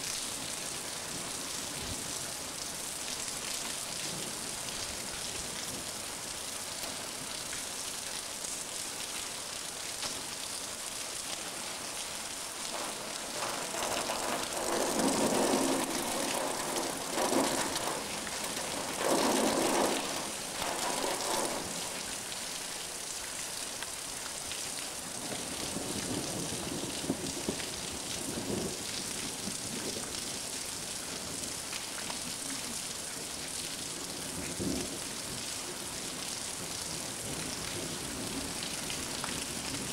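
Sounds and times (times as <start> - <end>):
heavy rain: 0.0 - 39.9
rolling thunder: 12.8 - 22.0.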